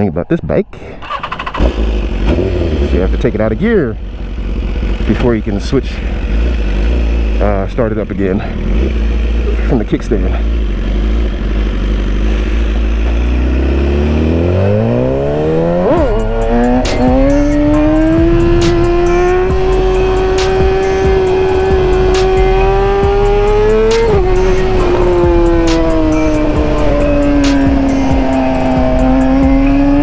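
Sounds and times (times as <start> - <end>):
motorcycle accelerating hard: 1.0 - 30.0.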